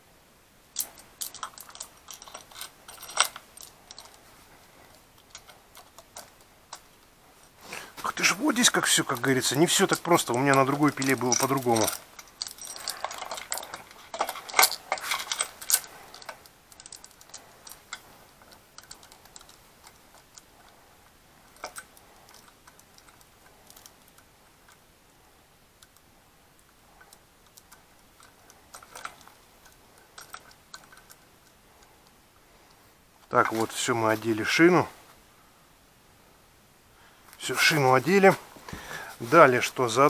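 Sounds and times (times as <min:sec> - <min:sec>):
saw chain clicking and rattling: 0:00.7 - 0:24.8, 0:26.6 - 0:32.2.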